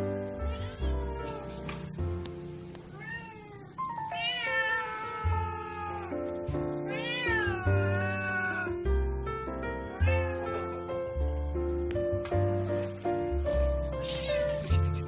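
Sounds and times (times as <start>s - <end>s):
cat meowing: 0.5s - 1.6s, 2.9s - 6.2s, 6.8s - 8.8s, 9.9s - 10.9s.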